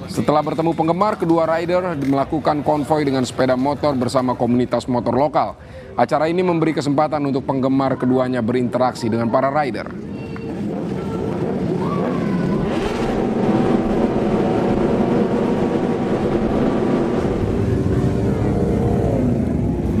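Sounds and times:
motorcycle engines revving: 9.9s - 20.0s.

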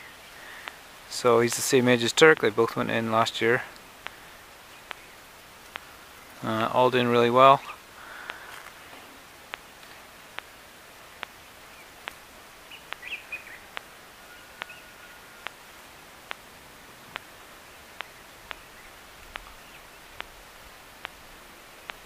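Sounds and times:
bush ambience: 0.0s - 22.0s
sharp clicks: 0.6s - 0.8s, 2.2s - 2.9s, 4.8s - 5.9s, 7.6s - 8.7s, 12.8s - 14.0s, 18.0s - 22.0s
bird chirps: 12.7s - 15.5s.

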